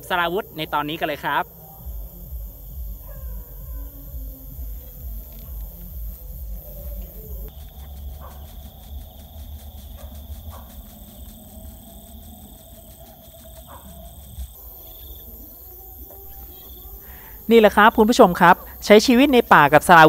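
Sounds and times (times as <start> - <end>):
crickets and insects calling: 0.0 - 20.0.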